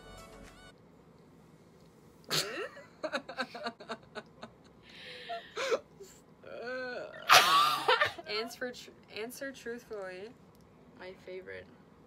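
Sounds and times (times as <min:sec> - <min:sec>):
women laughing: 0:02.4 - 0:05.7, 0:07.2 - 0:08.3.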